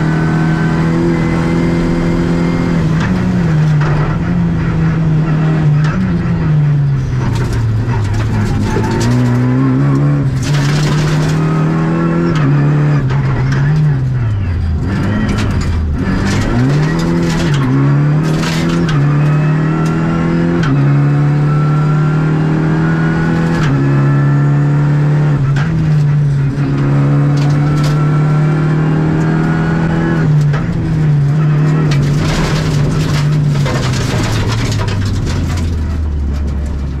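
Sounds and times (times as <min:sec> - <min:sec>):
car engine revving: 0:00.0 - 0:37.0
knocks and rattles: 0:07.2 - 0:11.8, 0:13.1 - 0:19.2, 0:30.3 - 0:37.0.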